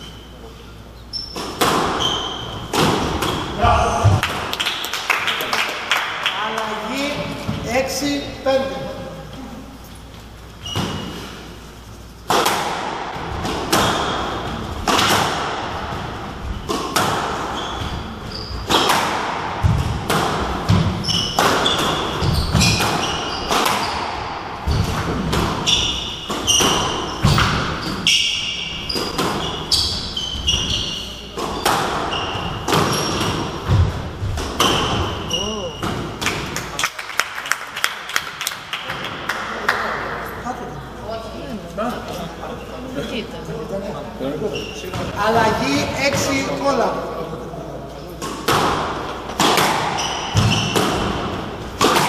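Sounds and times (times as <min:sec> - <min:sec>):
shoes squeaking on wooden floor: 0:00.0 - 0:04.2, 0:09.2 - 0:12.2, 0:16.4 - 0:19.0, 0:20.7 - 0:35.9, 0:44.4 - 0:45.6, 0:49.3 - 0:51.3
squash ball hitting rackets and walls: 0:01.1 - 0:06.4, 0:10.6 - 0:11.6, 0:12.2 - 0:40.2, 0:48.2 - 0:52.0.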